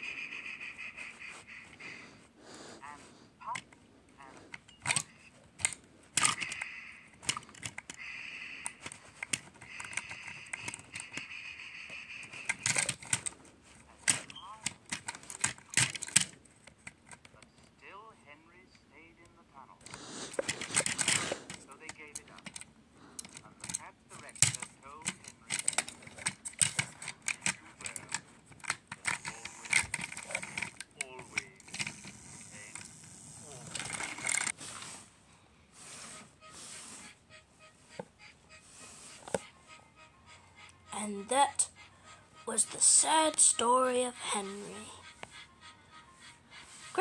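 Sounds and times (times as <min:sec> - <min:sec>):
plastic toy trains clicking and rattling: 0:03.4 - 0:17.4, 0:19.8 - 0:34.6.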